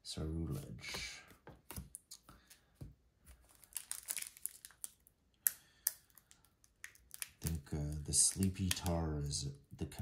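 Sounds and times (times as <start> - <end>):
cards rustling: 3.3 - 5.0
foil wrapper crinkling: 3.4 - 5.1.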